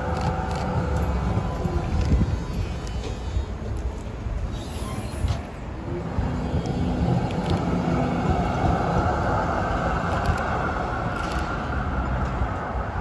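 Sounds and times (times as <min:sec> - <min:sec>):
tram wheels rumbling on rail: 0:00.0 - 0:13.0.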